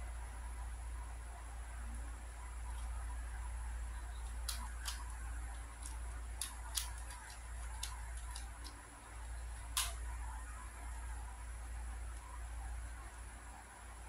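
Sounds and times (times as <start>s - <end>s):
puzzle cube layers clicking: 4.3s - 8.8s.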